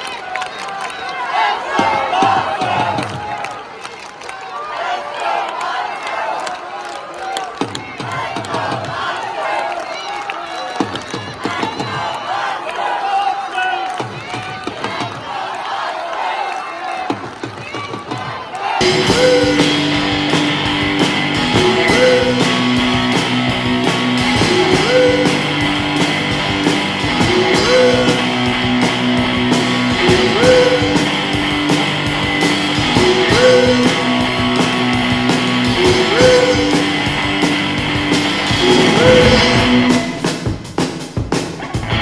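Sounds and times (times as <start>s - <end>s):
steady drum beat: 17.1s - 42.0s
rock music with electric guitar: 18.8s - 42.0s.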